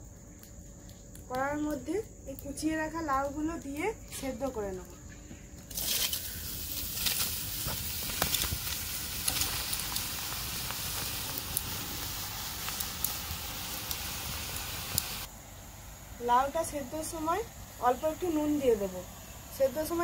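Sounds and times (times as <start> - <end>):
sharp crackles and pattering: 0.0 - 15.3
food sizzling in wok: 5.7 - 20.0.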